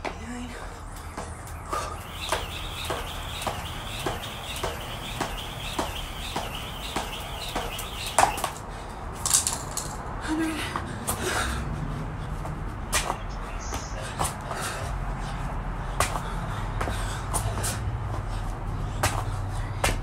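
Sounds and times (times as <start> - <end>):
jump rope slapping concrete: 0.9 - 10.0, 15.9 - 20.0.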